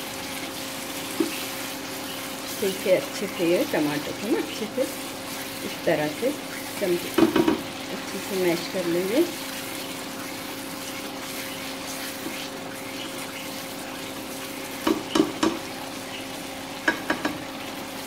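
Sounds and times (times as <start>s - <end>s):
masala sizzling in a pan: 0.0s - 18.0s
spatula knocks on pan: 7.2s - 7.6s, 14.8s - 15.6s, 16.8s - 17.4s
plastic spatula scraping: 9.0s - 14.0s.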